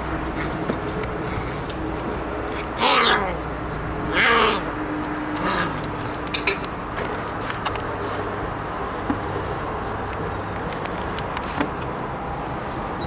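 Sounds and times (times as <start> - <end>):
puppy yelping: 2.8 - 3.4, 4.1 - 4.7.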